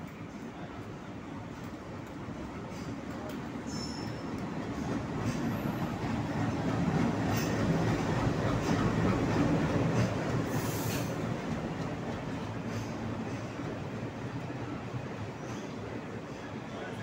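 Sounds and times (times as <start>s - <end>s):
train wheels rumbling: 0.8s - 17.0s
train wheel squeal: 3.6s - 6.6s, 7.2s - 9.2s, 10.0s - 11.2s, 15.2s - 16.9s.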